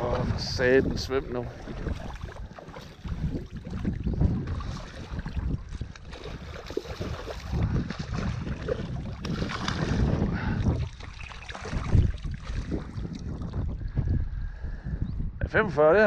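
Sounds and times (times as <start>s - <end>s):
wind buffeting microphone: 0.0s - 16.0s
fish thrashing and splashing: 1.5s - 13.7s.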